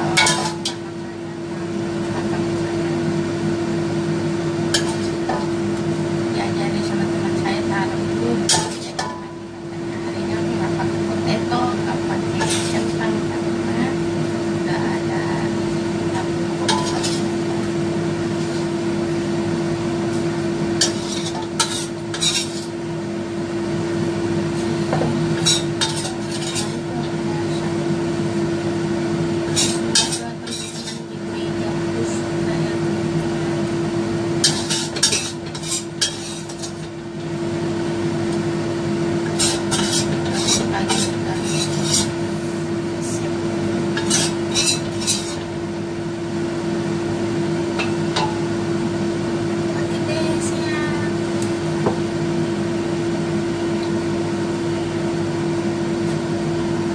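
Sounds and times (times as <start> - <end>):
steady hum: 0.0 - 56.9
metal ladle scraping bowl and wok: 0.1 - 0.8, 12.4 - 13.0, 16.6 - 17.4, 20.8 - 22.7, 25.4 - 26.8, 29.5 - 31.0, 34.4 - 36.9, 39.3 - 42.2, 44.0 - 45.5.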